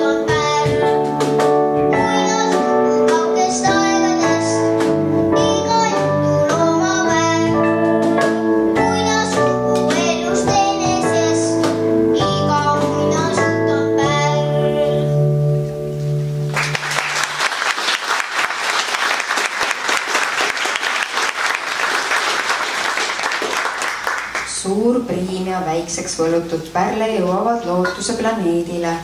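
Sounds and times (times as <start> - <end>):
boy singing into microphone: 0.0 - 15.2
electric keyboard: 0.0 - 20.5.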